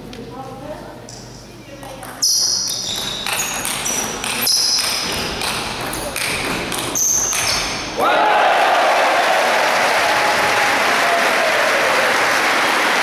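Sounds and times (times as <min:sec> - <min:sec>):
table tennis ball clicking: 0:01.8 - 0:07.7
crowd cheering and applause: 0:08.0 - 0:13.0.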